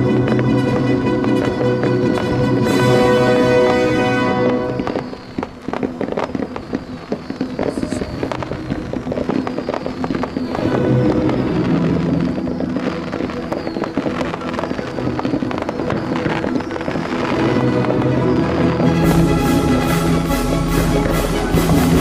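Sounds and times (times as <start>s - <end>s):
music playing: 0.0s - 5.4s, 17.0s - 22.0s
fireworks pops and crackles: 0.0s - 22.0s.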